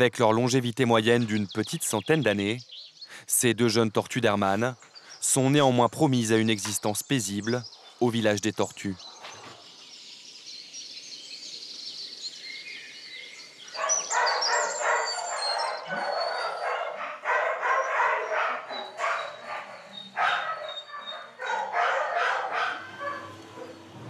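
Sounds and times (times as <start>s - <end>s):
faint bird chirping: 0.3s - 24.0s
dogs barking: 13.7s - 24.0s.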